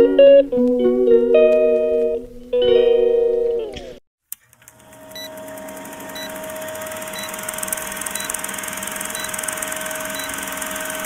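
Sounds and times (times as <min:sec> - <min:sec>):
guitar music: 0:00.0 - 0:04.0
film projector whirring: 0:04.3 - 0:11.0.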